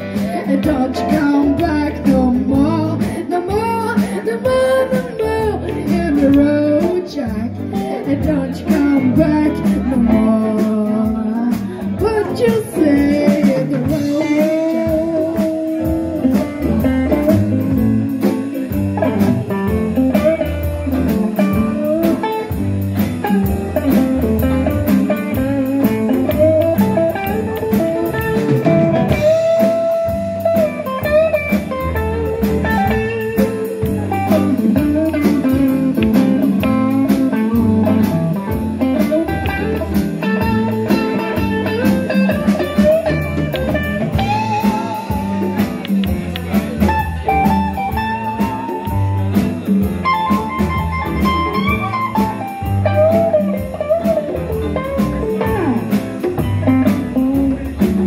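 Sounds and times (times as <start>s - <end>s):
blues band music with singing: 0.0s - 58.0s.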